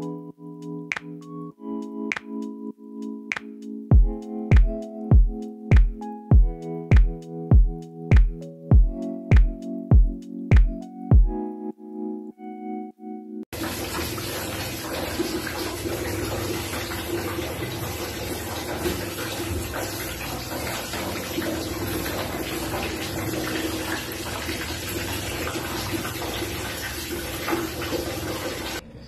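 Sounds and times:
shower water spraying: 13.6 - 28.8.

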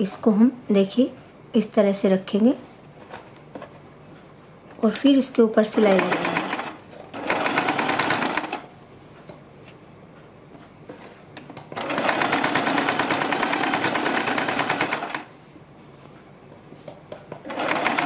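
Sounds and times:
sewing machine stitching: 5.8 - 8.6, 11.8 - 15.3, 17.4 - 18.0.

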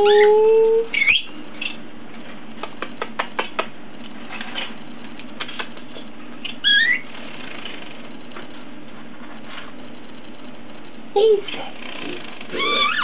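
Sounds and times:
budgerigar chirping: 0.9 - 1.8, 6.6 - 7.1.

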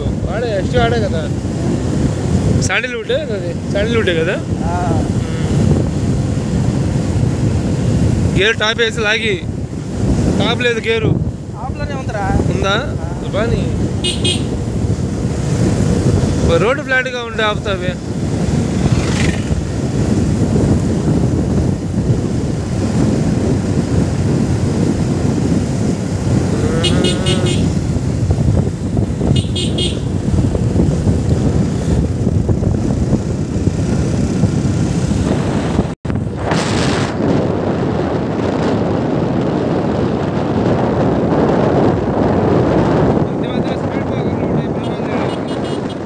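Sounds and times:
vehicle road rumble: 0.0 - 46.0
wind: 0.0 - 46.0
horn toots: 14.0 - 14.7, 26.5 - 27.9, 29.2 - 30.4, 44.8 - 46.0.

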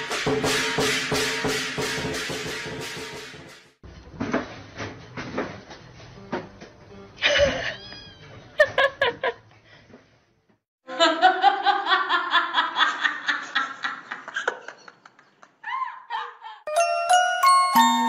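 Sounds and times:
person laughing hard: 7.2 - 7.8.

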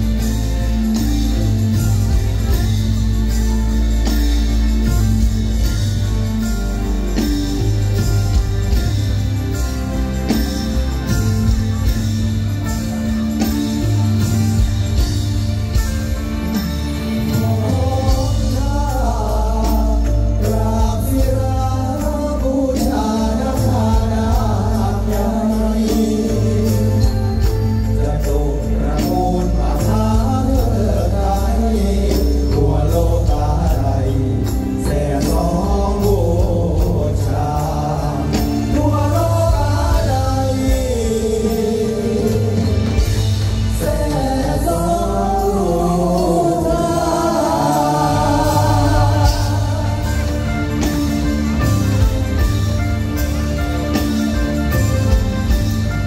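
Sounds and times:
stage music with drum beat: 0.0 - 56.0
person singing: 17.2 - 52.5
voices singing long held notes: 43.8 - 51.8.

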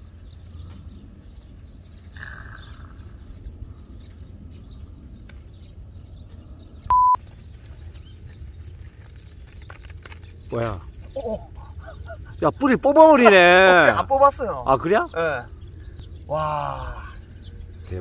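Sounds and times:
low outdoor rumble: 0.0 - 18.0
lettuce leaves rustling and snapping: 5.2 - 5.5, 7.2 - 11.2
electronic beep: 6.9 - 7.2.

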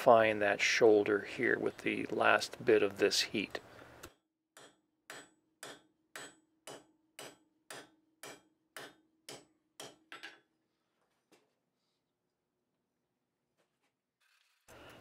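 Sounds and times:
hammer striking steel on anvil: 4.6 - 10.3.

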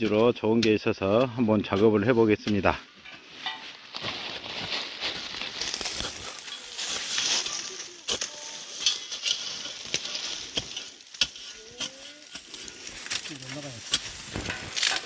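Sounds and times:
shovel crunching into leaves and soil: 3.4 - 15.0.

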